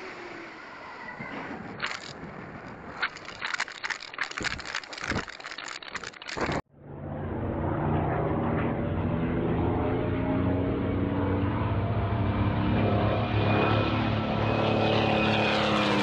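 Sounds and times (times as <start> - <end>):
clicks and rustling: 1.8 - 6.6.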